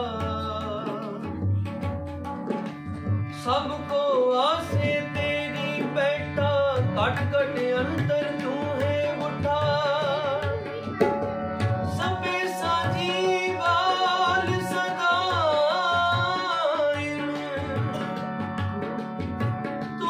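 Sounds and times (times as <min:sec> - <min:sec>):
man singing a devotional hymn: 0:00.0 - 0:01.4, 0:03.6 - 0:10.6, 0:11.8 - 0:18.2
harmonium chords: 0:00.0 - 0:20.0
tabla beat: 0:00.0 - 0:20.0.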